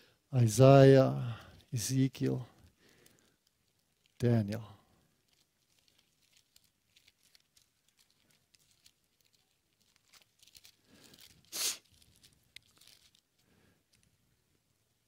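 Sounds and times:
paper pages rustling: 5.0 - 14.2.

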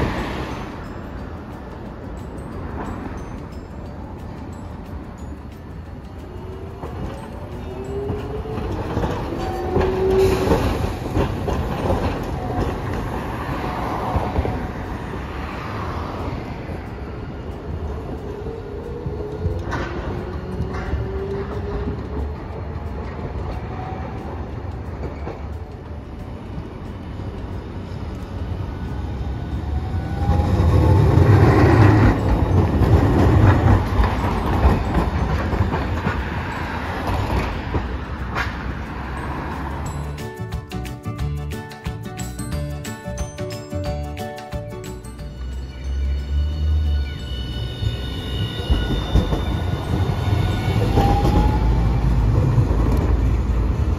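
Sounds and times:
rail joints clicking: 0.0 - 53.9
tram wheels rumbling on rail: 0.0 - 53.9.

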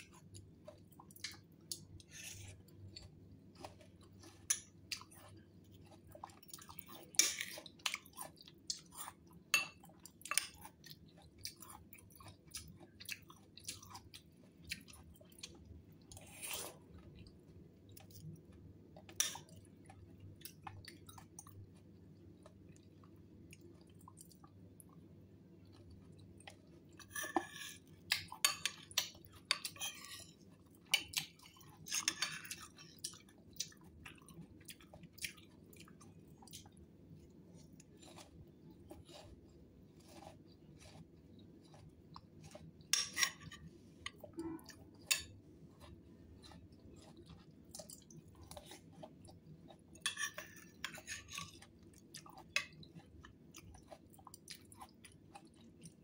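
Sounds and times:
person chewing wet mouth sounds: 10.0 - 25.0, 30.6 - 56.0.

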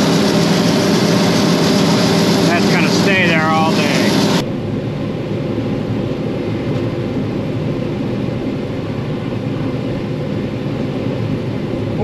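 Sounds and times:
combine harvester rumbling: 0.0 - 4.4.

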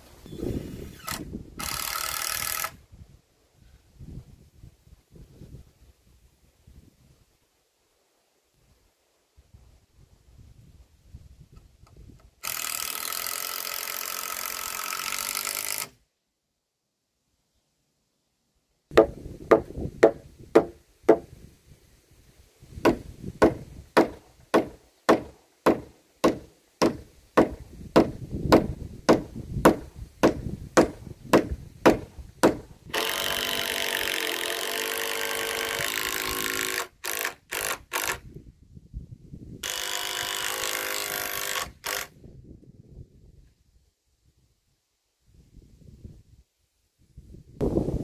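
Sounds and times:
cordless drill driving screws: 0.3 - 2.8, 12.4 - 16.0, 32.9 - 38.2, 39.6 - 42.1
knocks on timber: 18.9 - 21.3, 22.8 - 32.6.

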